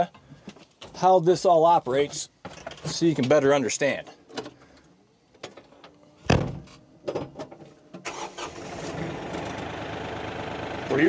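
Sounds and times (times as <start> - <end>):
door slamming shut: 6.2 - 7.4
tractor diesel engine running: 8.0 - 11.0.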